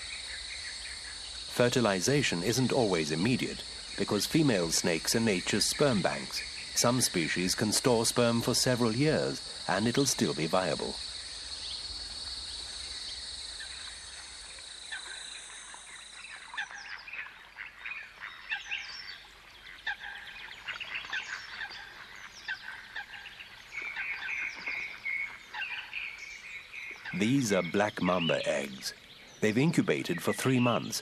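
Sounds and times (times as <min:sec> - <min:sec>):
high insect trill: 0:00.0 - 0:19.1
bird calls and chirps: 0:00.0 - 0:31.0.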